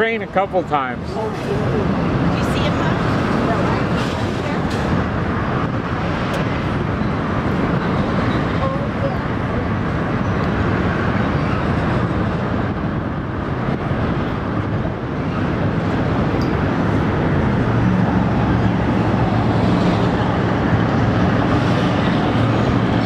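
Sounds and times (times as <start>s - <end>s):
train wheels rumbling on rails: 1.1s - 10.0s.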